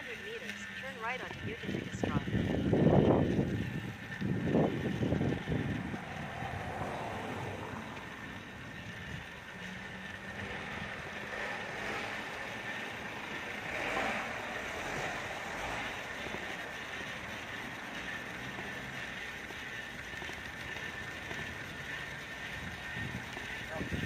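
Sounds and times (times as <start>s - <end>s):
bicycle tyres rolling: 0.0s - 24.0s.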